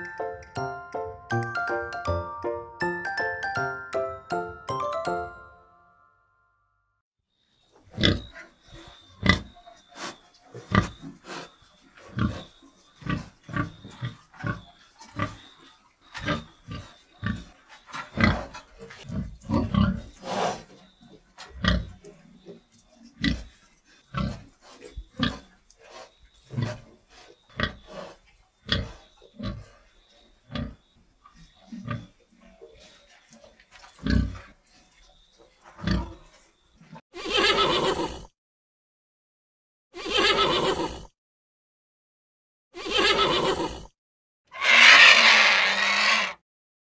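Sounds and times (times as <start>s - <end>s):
pigs grunting: 7.9s - 29.9s, 31.4s - 34.9s, 35.6s - 36.4s, 44.6s - 46.4s.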